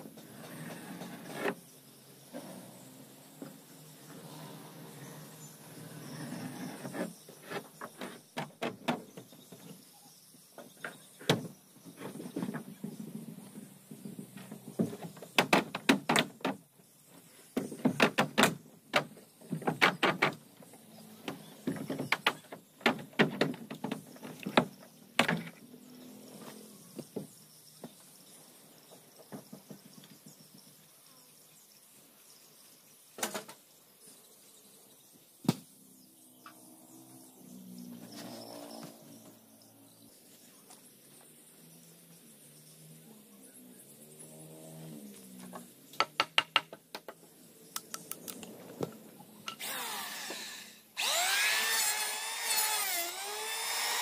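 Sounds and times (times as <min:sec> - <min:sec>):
hammer knocking on wooden planks: 0:46.0 - 0:47.2.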